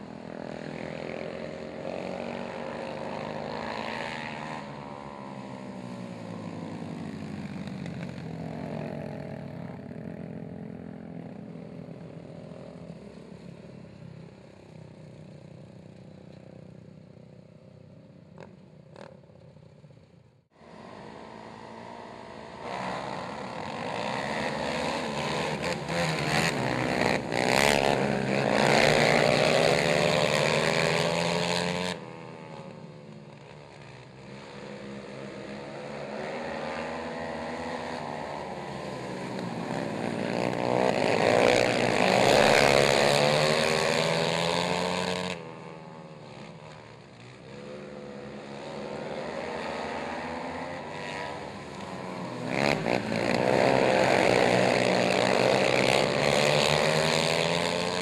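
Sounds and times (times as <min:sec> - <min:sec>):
quad engines revving: 0:00.0 - 0:17.4, 0:20.6 - 0:58.0.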